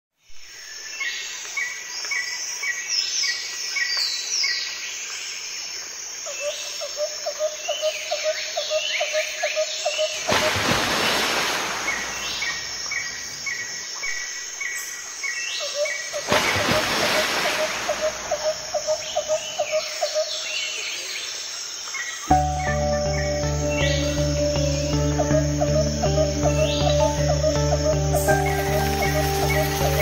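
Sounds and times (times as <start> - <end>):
small birds chirping: 22.0 - 30.0.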